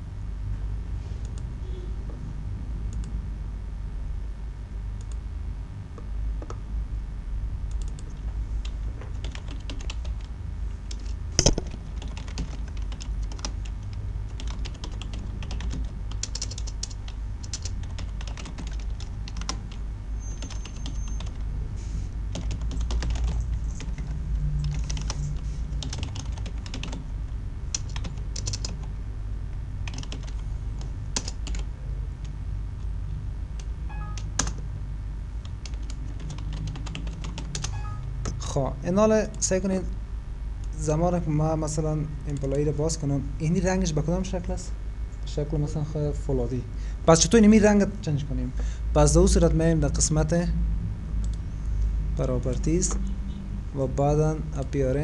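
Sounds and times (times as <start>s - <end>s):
low steady hum: 0.0s - 55.0s
keyboard keys clicking: 7.7s - 10.2s, 10.9s - 13.8s, 14.4s - 19.7s, 22.3s - 25.2s, 25.8s - 27.0s, 27.7s - 28.8s, 29.9s - 30.4s, 34.2s - 34.6s, 35.4s - 37.8s.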